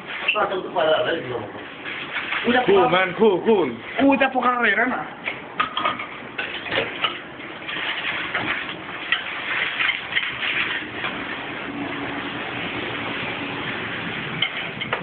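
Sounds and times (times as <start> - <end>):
dishes knocking and clinking: 5.3 - 7.2, 14.4 - 15.0
running tap water: 6.6 - 15.0.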